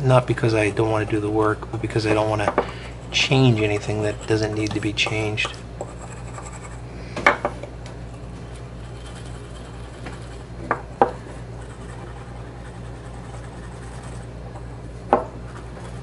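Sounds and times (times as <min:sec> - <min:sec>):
steady low hum: 0:00.0 - 0:16.0
pad rubbing on pipe: 0:11.6 - 0:14.4.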